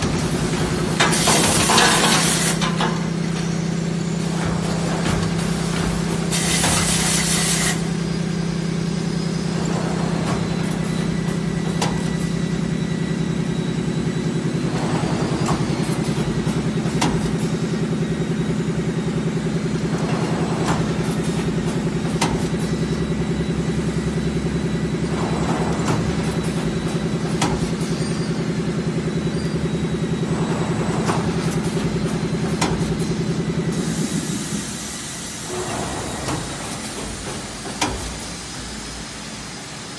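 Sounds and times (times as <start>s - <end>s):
machine clicks and air puffs: 0.0s - 3.5s, 4.2s - 8.0s
machine hum: 0.0s - 39.9s
compressed air hiss: 6.3s - 7.9s.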